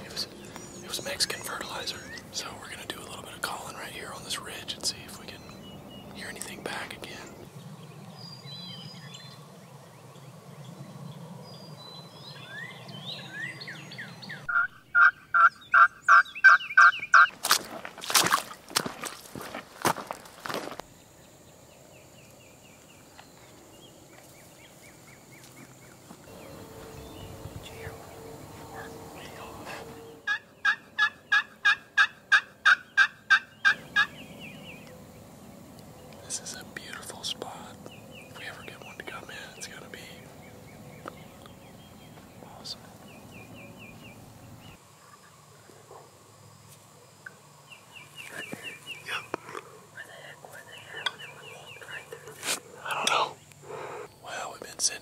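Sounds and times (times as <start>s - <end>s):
songbird chirping: 0.0s - 55.0s
boot steps on gravel: 17.3s - 20.8s
low hum: 25.8s - 30.3s.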